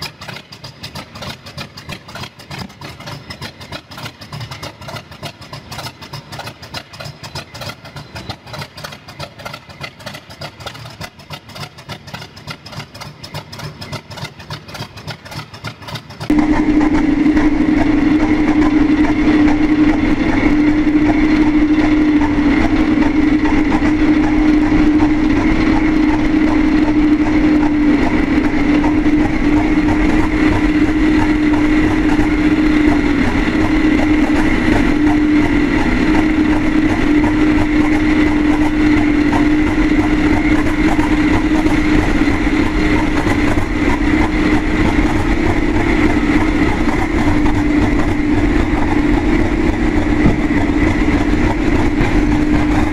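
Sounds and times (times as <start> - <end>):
diesel locomotive engine idling: 0.0 - 52.9
steady high whine: 16.2 - 52.9.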